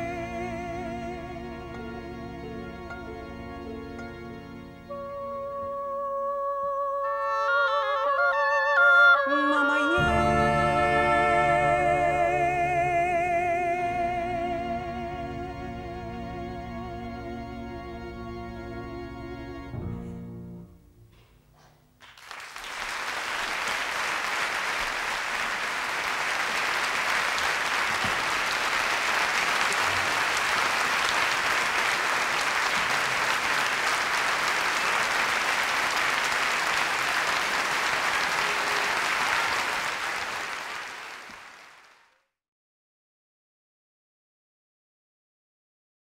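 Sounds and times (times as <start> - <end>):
audience applauding: 22.0 - 42.2.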